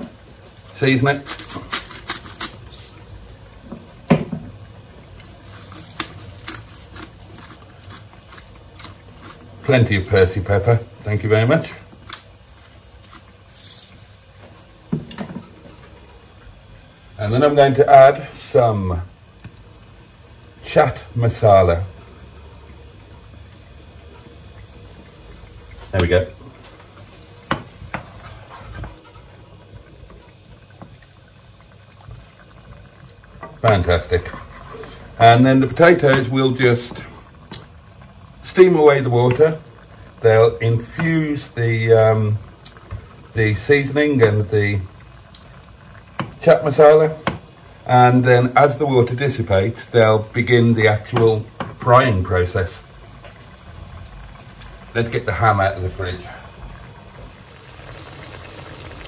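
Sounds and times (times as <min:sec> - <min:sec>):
water bubbling in a pan: 0:00.0 - 0:59.0
wooden spoon knocking on a pan: 0:03.7 - 0:04.6.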